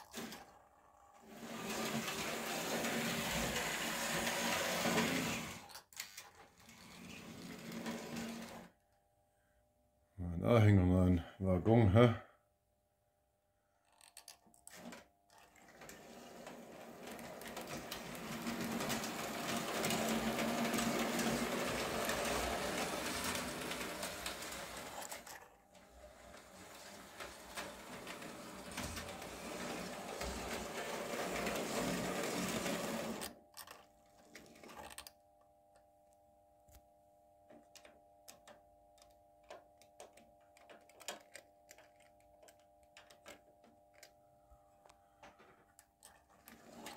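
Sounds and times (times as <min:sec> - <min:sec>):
model train whirring rattle: 0:01.2 - 0:08.6, 0:15.4 - 0:25.5, 0:26.2 - 0:33.8
faint steady hum: 0:33.2 - 0:46.9.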